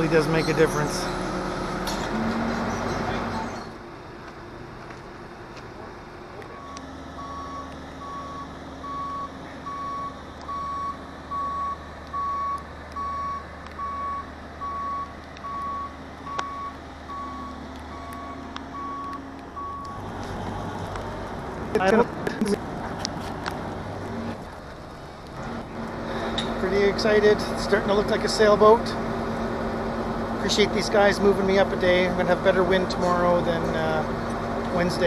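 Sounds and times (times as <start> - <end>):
diesel engine running: 0.0 - 35.0
reversing alarm beeps: 6.5 - 20.0.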